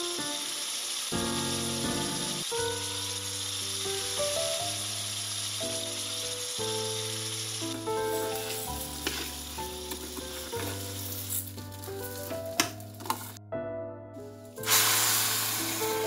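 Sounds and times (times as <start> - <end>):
food sizzling in a pan: 0.0 - 13.4, 14.6 - 16.0
instrumental background music: 0.0 - 16.0.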